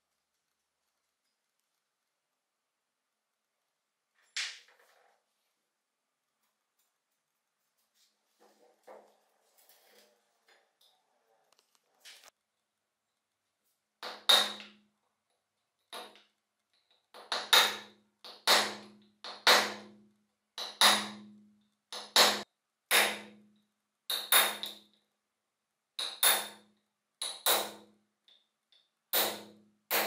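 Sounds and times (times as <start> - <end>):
hammer striking metal punch: 14.0 - 14.7, 17.2 - 19.9, 20.6 - 21.3, 22.0 - 23.4, 24.1 - 24.8, 26.0 - 26.6, 27.2 - 27.8, 29.1 - 30.0.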